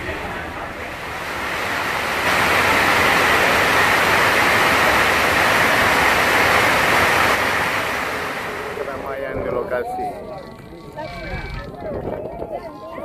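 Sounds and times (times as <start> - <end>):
heavy rain on a metal roof: 0.0 - 9.4.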